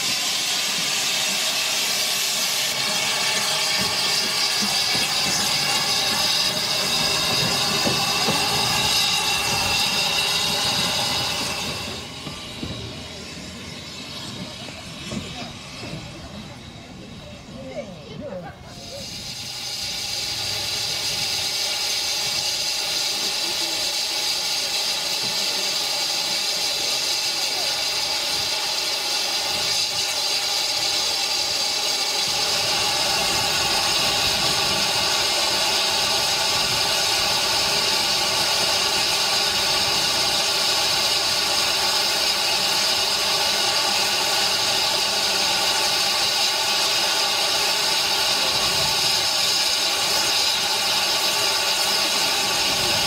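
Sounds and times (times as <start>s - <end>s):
steam hissing from locomotive: 0.0s - 53.0s.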